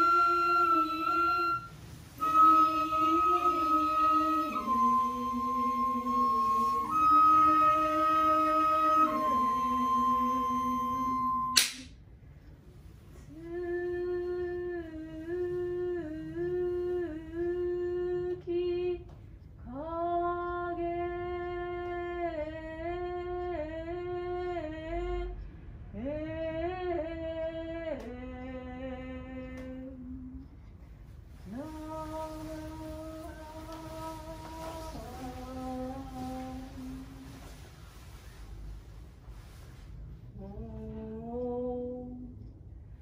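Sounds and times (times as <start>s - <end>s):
woman singing slow song: 0.0s - 11.6s, 13.2s - 30.7s, 31.3s - 38.4s, 40.3s - 42.6s
flute note: 0.0s - 11.8s
sharp click: 11.5s - 12.0s.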